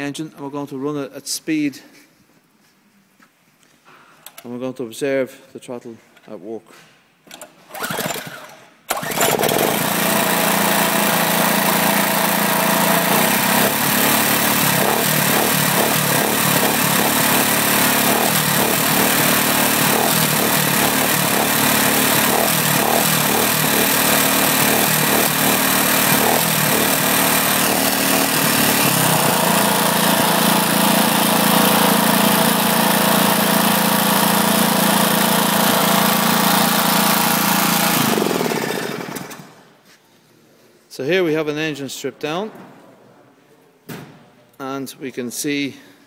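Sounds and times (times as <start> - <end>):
small engine running: 7.7 - 39.6.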